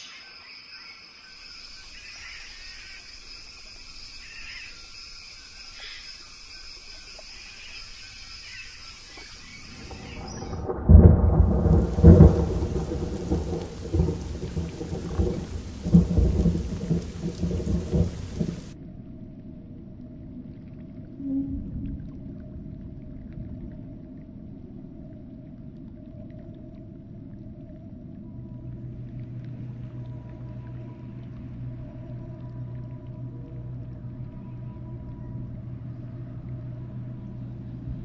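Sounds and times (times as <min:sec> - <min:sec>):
rain hiss: 0:00.0 - 0:18.8, 0:27.8 - 0:38.0
thunder rumbling and cracking: 0:09.7 - 0:18.8
faint high-pitched drone: 0:21.2 - 0:22.5, 0:28.0 - 0:38.0.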